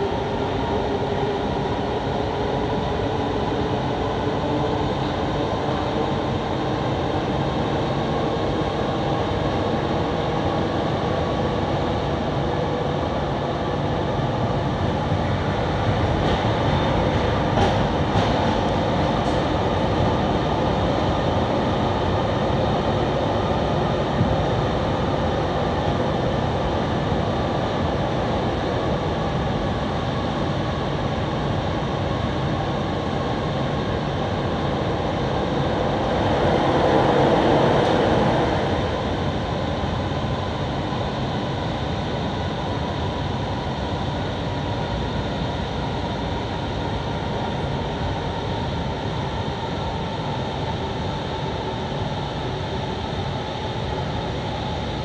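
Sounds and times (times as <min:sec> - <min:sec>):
passing train rush: 0:00.0 - 0:29.6, 0:33.8 - 0:40.2
metro train rumbling in tunnel: 0:00.0 - 0:55.0.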